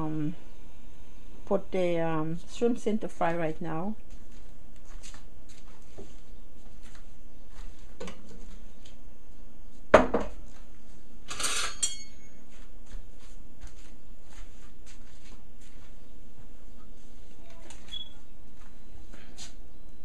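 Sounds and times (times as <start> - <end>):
dishes and utensils clattering: 11.3 - 12.4
scrape with metallic ring: 11.3 - 12.4.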